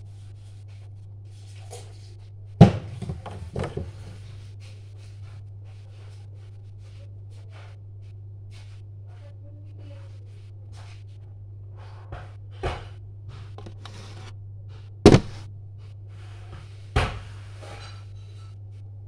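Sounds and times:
steady low hum: 13.0 - 16.4
loud knock: 15.1 - 15.4
rattling and clattering: 15.1 - 15.4.

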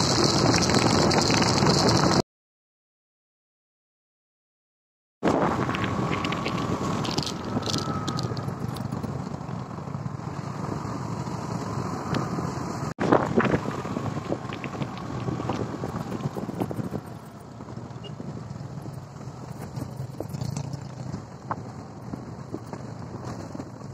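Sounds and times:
knocks and rattles on dirt track: 0.0 - 2.2, 5.3 - 9.7, 13.0 - 23.9
motorcycle engine running: 0.0 - 2.2, 5.5 - 10.3, 13.1 - 23.9
wind buffeting microphone: 13.0 - 23.9.

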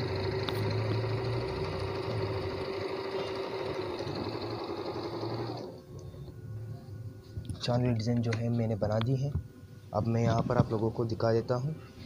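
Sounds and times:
sewing machine running: 0.0 - 5.8.

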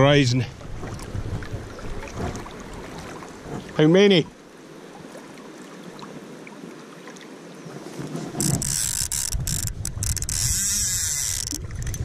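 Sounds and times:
river flowing: 0.0 - 12.0
rubbing and handling noise: 7.9 - 12.0
fishing reel ratchet buzzing: 8.4 - 12.0.

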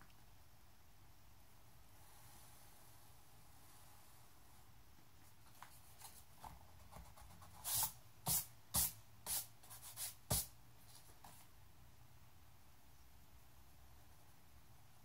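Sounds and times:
pencil scratching across paper: 6.0 - 10.5
pencil tapping: 6.4 - 10.5.

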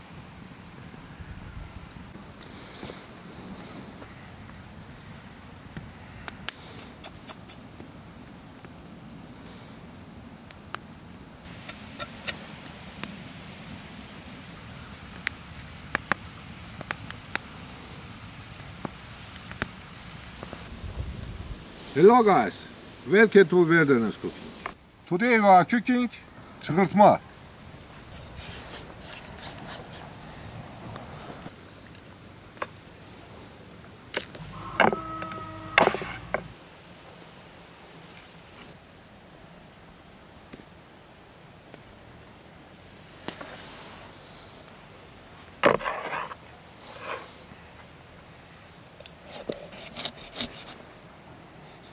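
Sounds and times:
campfire crackling and popping: 5.5 - 25.2, 31.0 - 34.5, 40.4 - 43.7, 44.6 - 49.8
steady squeaking whine: 34.4 - 36.5.

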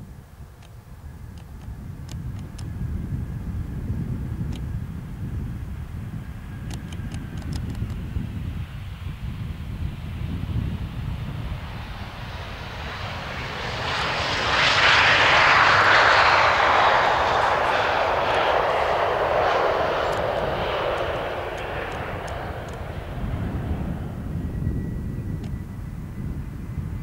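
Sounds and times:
faint high engine whine: 0.0 - 27.0
jet engine roar: 1.0 - 27.0.

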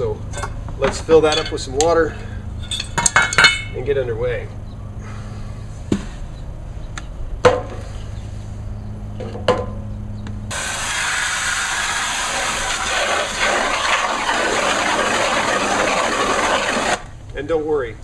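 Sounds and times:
hose water filling plastic bucket: 10.5 - 17.1.

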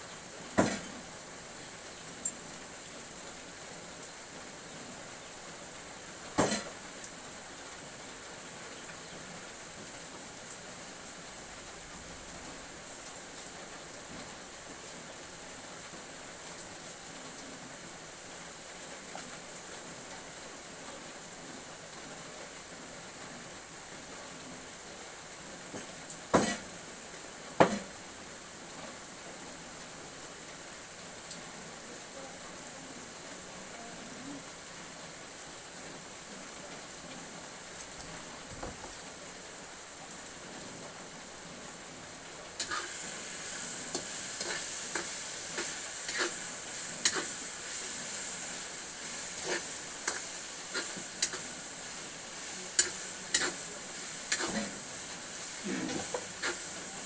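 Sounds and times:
food sizzling in a wok: 0.0 - 57.0
metal utensil scraping a wok: 42.6 - 56.9.

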